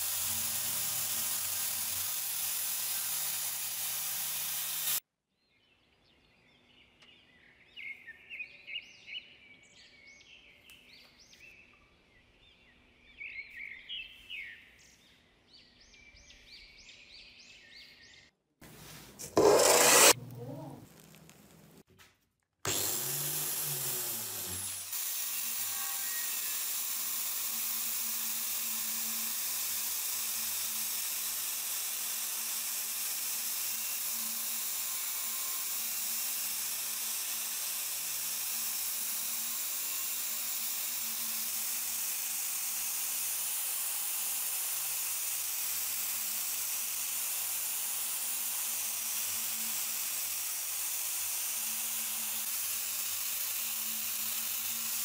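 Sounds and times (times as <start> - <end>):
abrasive disc hissing on steel: 19.2 - 20.2
angle grinder motor hum: 19.2 - 20.8, 22.7 - 55.0.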